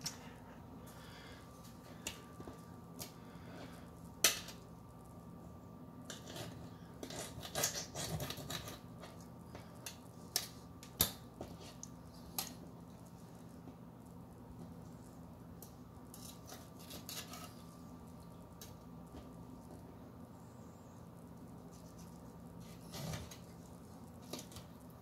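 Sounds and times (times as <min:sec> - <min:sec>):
knife scraping and slicing: 0:06.1 - 0:09.2, 0:16.1 - 0:17.7.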